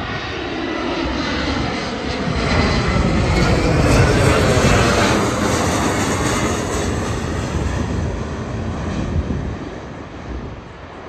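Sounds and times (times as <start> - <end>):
jet airliner passing overhead: 0.0 - 11.0.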